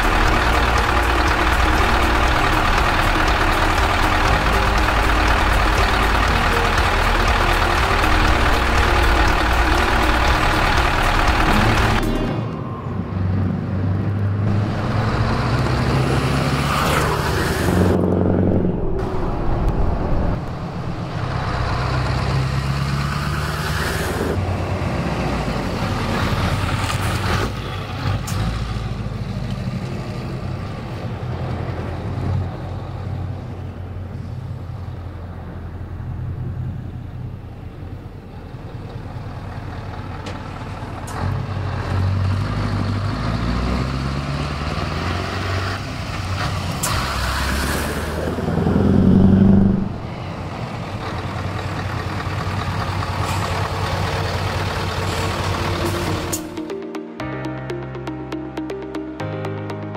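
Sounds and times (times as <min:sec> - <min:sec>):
diesel truck engine driving past: 0:00.0 - 0:56.4.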